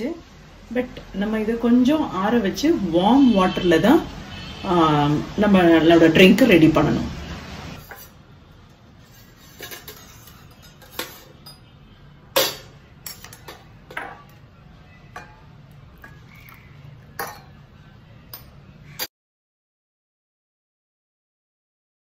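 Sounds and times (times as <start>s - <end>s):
kitchen utensils clinking: 7.8s - 8.2s, 9.0s - 11.8s, 12.4s - 14.4s, 15.1s - 17.7s.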